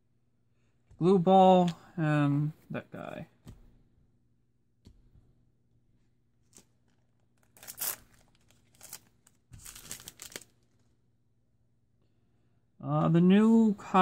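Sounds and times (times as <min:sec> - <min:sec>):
foil wrapper crinkling and tearing: 0:06.4 - 0:10.9.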